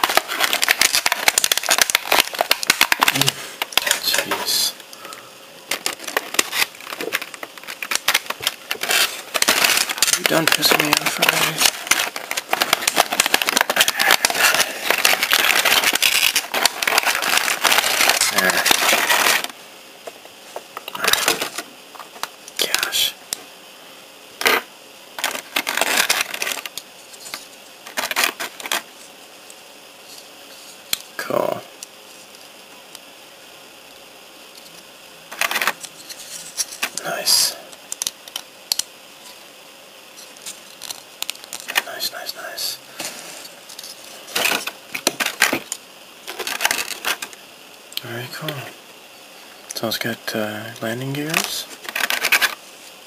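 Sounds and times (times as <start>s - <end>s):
plastic packaging crinkling: 0.0s - 22.9s, 24.4s - 29.0s, 35.3s - 39.4s, 40.1s - 47.4s, 51.1s - 53.0s.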